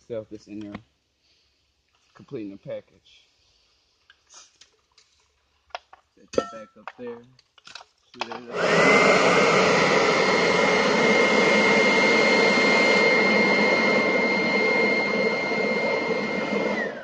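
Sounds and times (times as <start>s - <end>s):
electric fan rush and whine: 8.5s - 17.0s.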